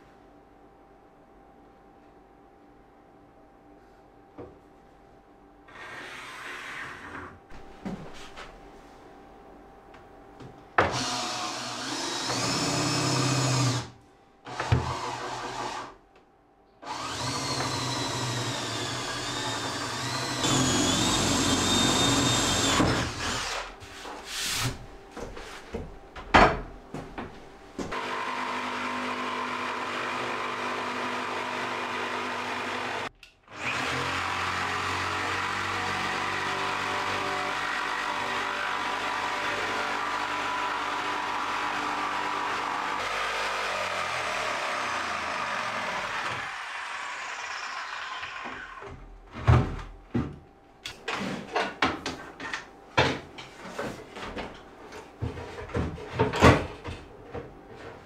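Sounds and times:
power tool motor whine: 16.9 - 23.7.

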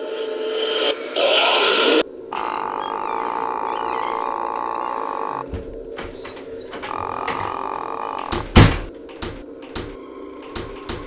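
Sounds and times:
light knocks and clicks: 8.2 - 11.0.

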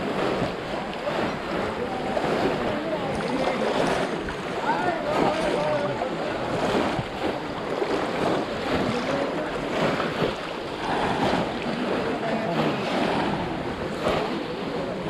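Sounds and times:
people talking: 0.0 - 15.0
water splashing and sloshing: 0.0 - 15.0.

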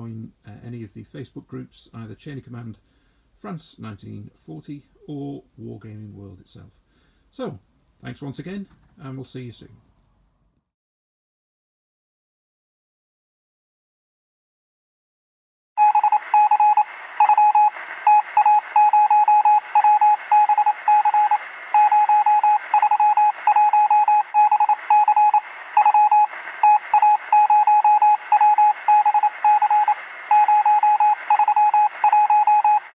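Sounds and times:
morse code beeps: 15.8 - 32.9
radio static hiss: 15.8 - 32.9.

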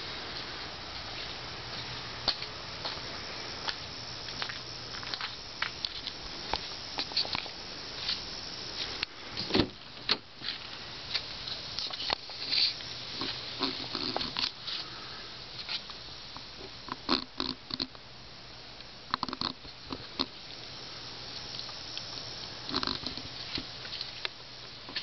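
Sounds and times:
car door thump: 9.5 - 10.2.

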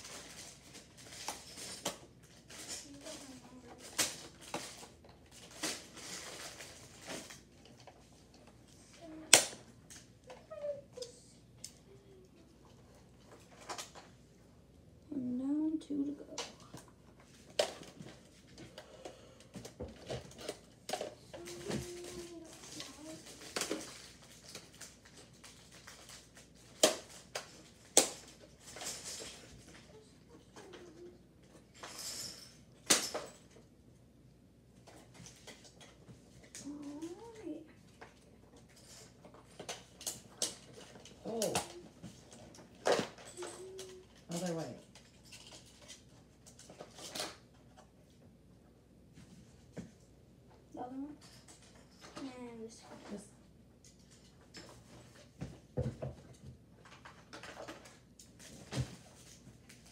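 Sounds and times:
packaging rustling: 0.0 - 7.8.

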